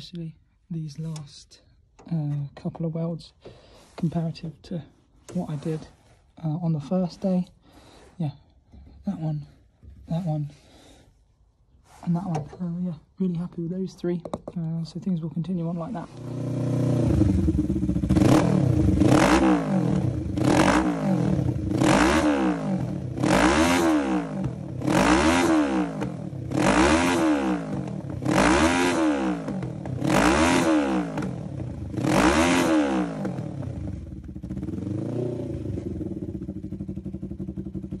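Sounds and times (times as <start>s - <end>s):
engine idling: 36.0s - 38.0s.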